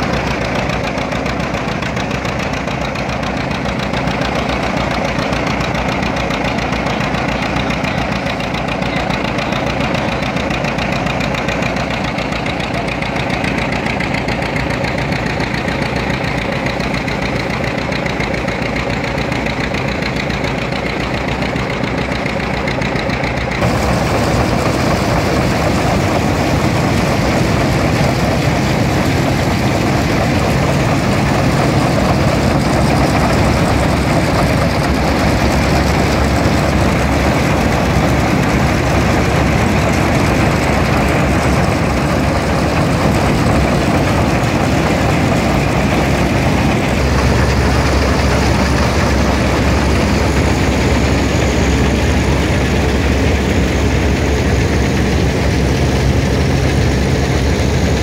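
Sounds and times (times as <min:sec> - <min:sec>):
threshing machine running: 0:00.0 - 0:58.0.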